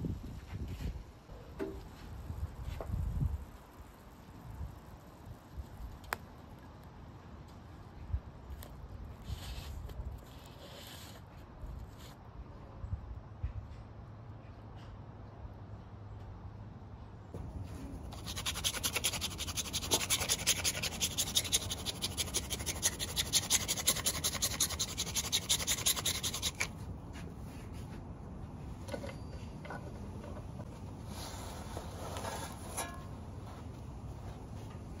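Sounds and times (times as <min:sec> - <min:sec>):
cheese grater rasping: 0:18.1 - 0:26.7.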